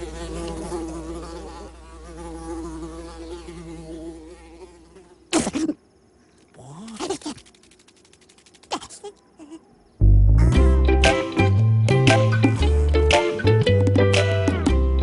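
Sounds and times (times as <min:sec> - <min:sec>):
fly buzzing: 0:00.0 - 0:05.8, 0:06.6 - 0:09.2.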